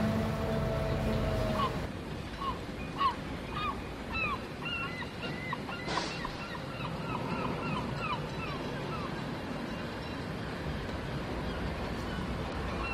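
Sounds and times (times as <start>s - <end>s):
birds honking: 0.0s - 1.9s.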